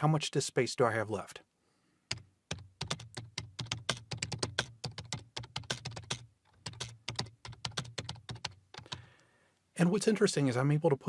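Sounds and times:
typing on computer keyboard: 2.1s - 9.1s.

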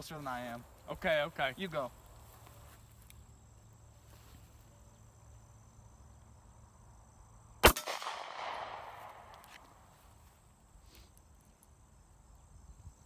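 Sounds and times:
pistol shot with echo: 7.6s - 9.4s.

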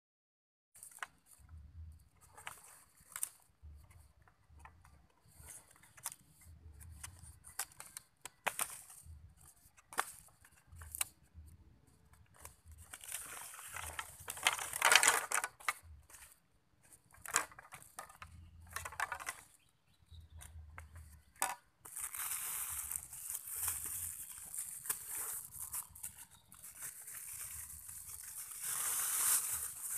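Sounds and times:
bamboo poles knocking together: 13.7s - 15.8s, 17.1s - 19.5s, 20.4s - 22.2s
dry leaves rustling: 21.4s - 29.9s.

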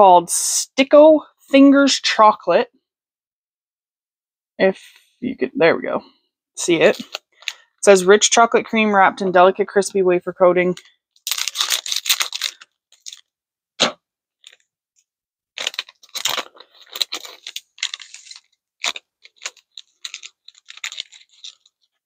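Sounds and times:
snack packaging crinkling: 6.9s - 7.7s, 10.8s - 13.3s, 14.4s - 14.6s, 15.6s - 22.0s.

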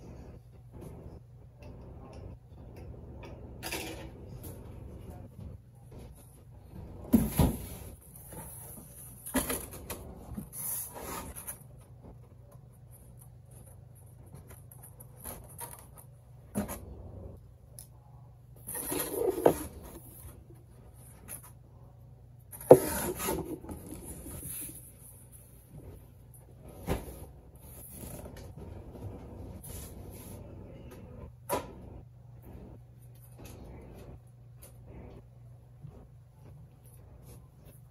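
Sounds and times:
cardboard rubbing and scraping: 22.6s - 24.8s.

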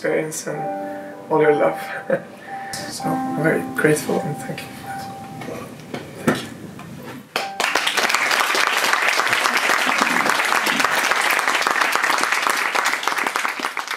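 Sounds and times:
small group applauding: 7.3s - 13.9s.

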